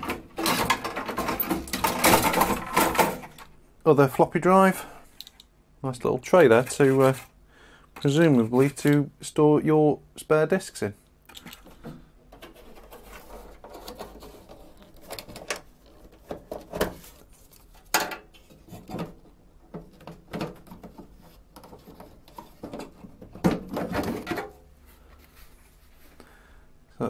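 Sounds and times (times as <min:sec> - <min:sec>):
metal computer parts clicking and rattling: 0:00.0 - 0:03.5.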